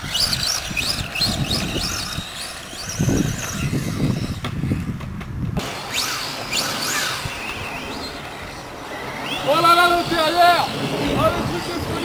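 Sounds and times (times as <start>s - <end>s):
toy race car motors whining: 0.0s - 5.0s, 5.6s - 12.0s.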